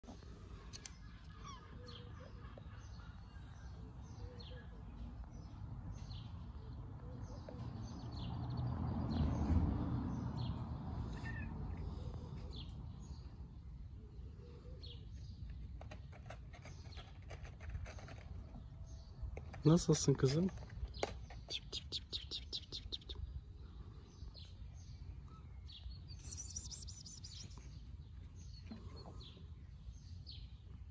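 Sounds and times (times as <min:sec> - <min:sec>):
small birds chirping: 0:00.0 - 0:30.9.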